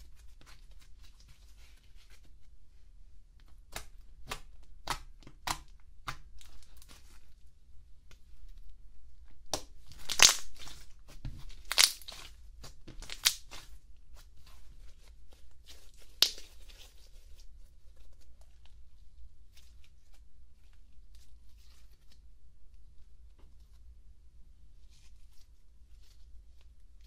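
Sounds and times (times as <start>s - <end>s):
slime snapping: 9.5s - 10.7s, 11.6s - 12.2s, 13.0s - 13.6s
slime stretched by hand: 9.9s - 10.9s.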